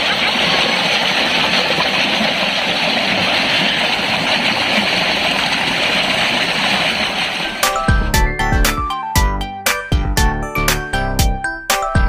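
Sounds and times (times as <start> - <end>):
stream rushing over rocks: 0.0 - 7.8.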